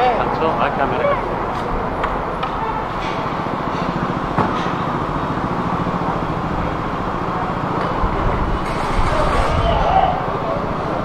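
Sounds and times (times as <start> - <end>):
motor vehicle engine rumble: 0.0 - 11.0.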